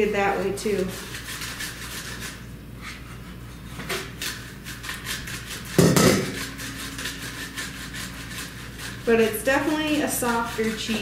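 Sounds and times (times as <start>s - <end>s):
dish knock and clatter: 5.8s - 6.5s.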